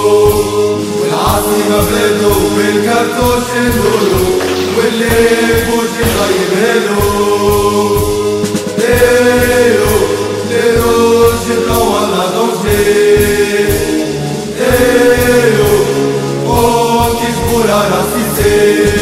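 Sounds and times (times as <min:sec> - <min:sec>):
group of voices chanting: 0:01.0 - 0:08.0
steady drumbeat: 0:01.2 - 0:19.0.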